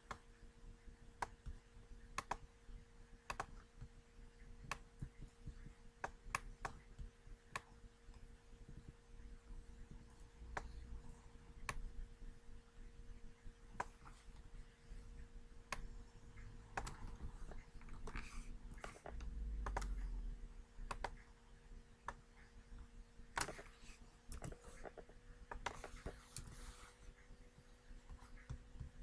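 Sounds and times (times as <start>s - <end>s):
computer mouse clicks: 0.0s - 0.3s, 1.2s - 2.5s, 3.2s - 3.9s, 11.6s - 11.8s, 13.8s - 14.4s, 15.7s - 20.1s, 20.8s - 21.3s, 23.3s - 26.6s
faint electrical hum: 0.0s - 29.0s
keyboard keystrokes: 18.8s - 20.0s.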